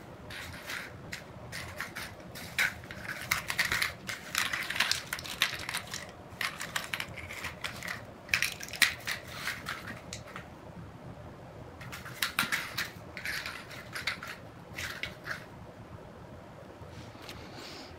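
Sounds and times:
foil and paper crinkling: 1.6s - 10.1s.

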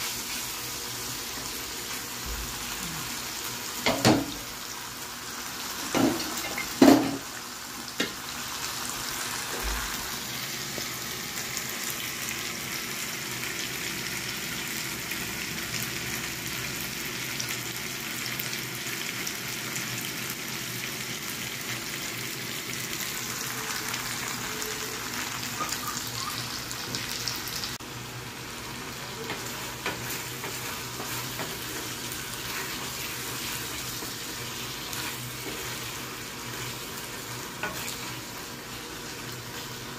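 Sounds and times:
vegetables sizzling in oil: 0.0s - 39.9s.

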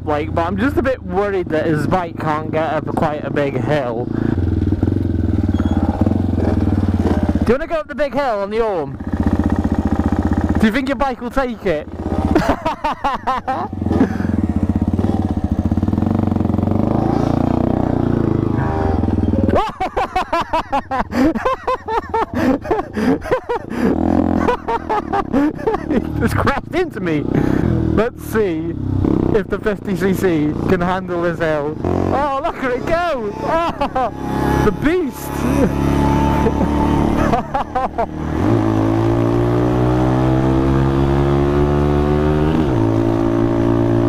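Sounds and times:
motorcycle engine running: 0.0s - 44.0s
man laughing hard: 12.2s - 14.6s, 18.5s - 27.8s, 32.1s - 39.3s.

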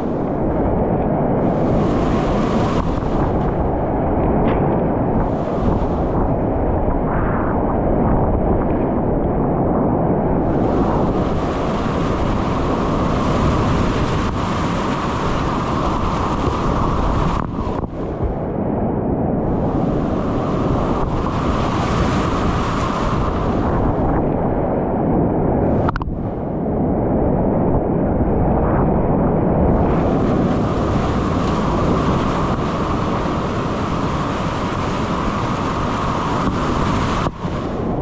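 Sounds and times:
whitewater rapids rushing: 29.8s - 38.0s.

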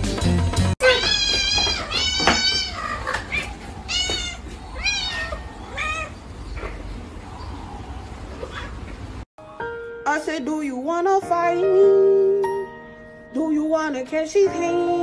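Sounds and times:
cat meowing: 0.8s - 6.2s.

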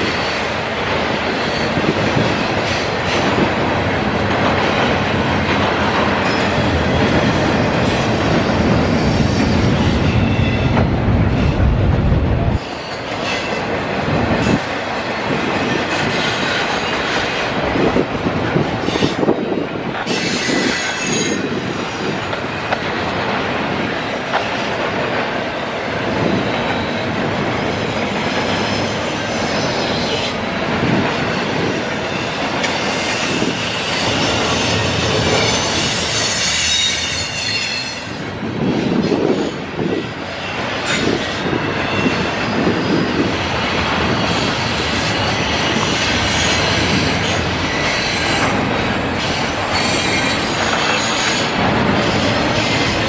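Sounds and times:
train wheels clacking over rails: 0.0s - 53.0s
high-pitched wheel squeal: 32.1s - 38.4s.

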